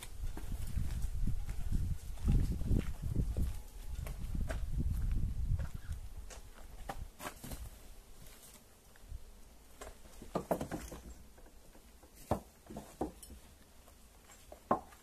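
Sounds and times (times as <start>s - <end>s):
footsteps: 0.0s - 8.6s.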